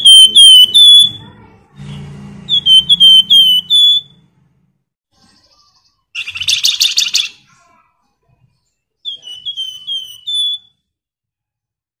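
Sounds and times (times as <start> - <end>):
songbird singing: 0.0 - 4.3, 5.2 - 7.5, 8.6 - 10.9.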